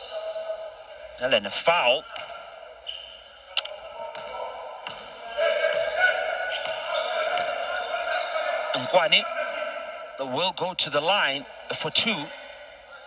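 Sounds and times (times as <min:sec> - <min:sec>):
murmur of voices: 0:00.0 - 0:13.0
basketball bouncing on court floor: 0:04.1 - 0:05.1.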